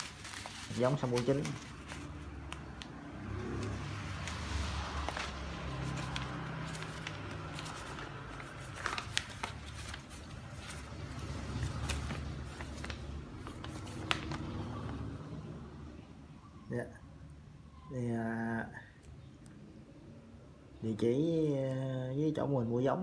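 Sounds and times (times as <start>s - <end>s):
paper rustling and crinkling: 0.0s - 3.0s, 3.6s - 15.1s.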